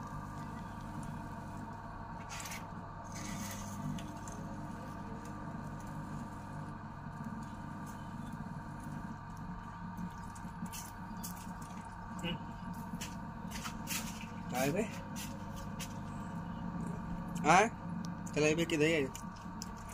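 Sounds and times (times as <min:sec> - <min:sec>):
steady low hum: 0:00.0 - 0:19.9.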